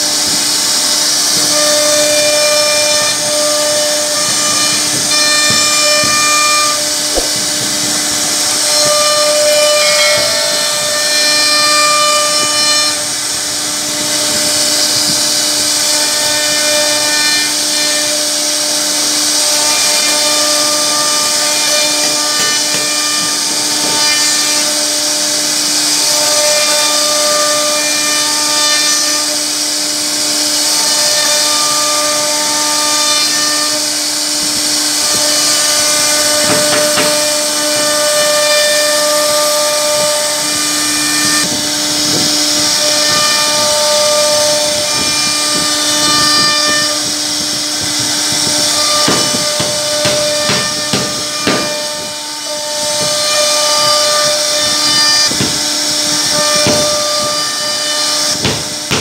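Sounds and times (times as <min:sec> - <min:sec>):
stepper motor tones: 0:00.0 - 0:28.6, 0:29.2 - 0:59.0
router bit cutting wood: 0:00.0 - 0:59.0
rattling knocks: 0:02.4 - 0:17.7, 0:35.0 - 0:59.0.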